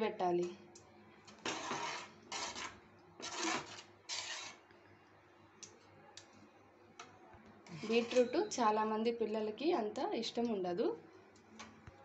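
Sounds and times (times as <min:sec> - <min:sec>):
metal spoon scraping a pan: 0:01.4 - 0:04.6, 0:07.7 - 0:08.5.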